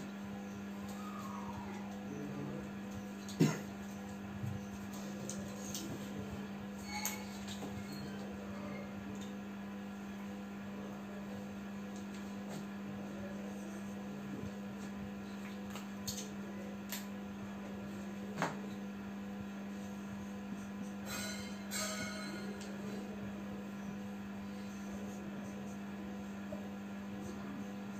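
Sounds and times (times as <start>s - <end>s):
low electrical hum: 0.0s - 27.9s.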